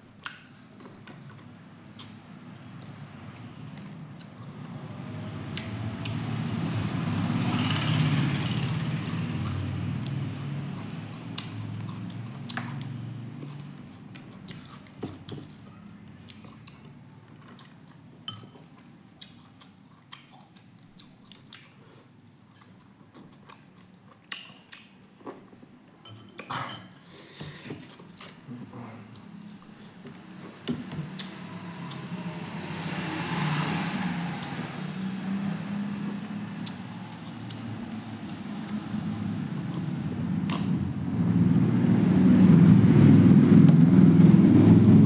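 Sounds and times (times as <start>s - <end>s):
chewing and biting: 8.7s - 25.6s, 35.3s - 40.8s.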